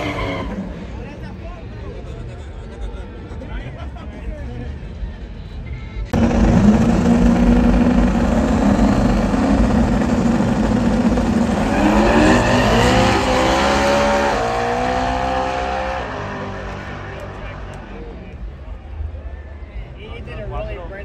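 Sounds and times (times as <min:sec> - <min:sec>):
truck engine revving: 0:06.1 - 0:18.2.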